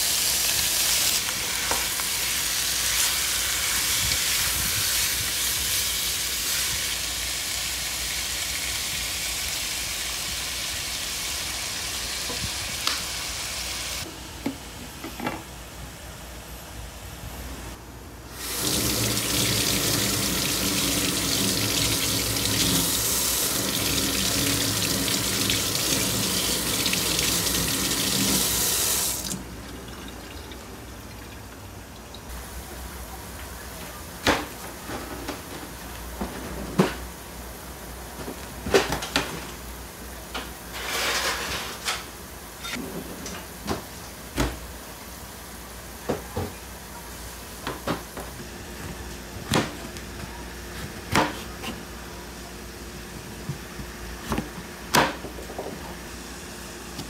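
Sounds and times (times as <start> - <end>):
tap water running into sink: 18.4 - 32.3.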